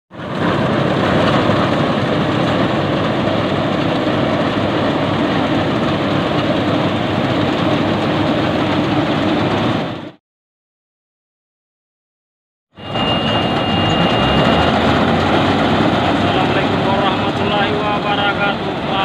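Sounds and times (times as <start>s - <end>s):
combine harvester engine drone: 0.1s - 10.2s, 12.8s - 19.0s.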